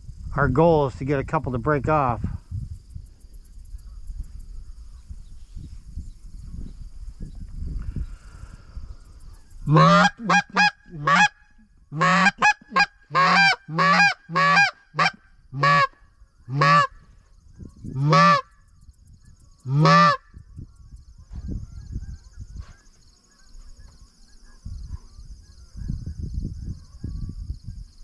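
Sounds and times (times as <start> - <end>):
goose call honks: 9.7 - 17.0, 18.0 - 18.5, 19.7 - 20.3.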